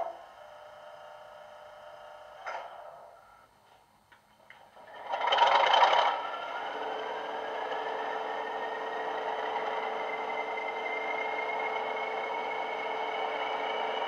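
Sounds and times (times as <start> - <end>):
diesel engine starting and idling: 4.7 - 14.0
turbocharger whistle rising: 8.4 - 14.0.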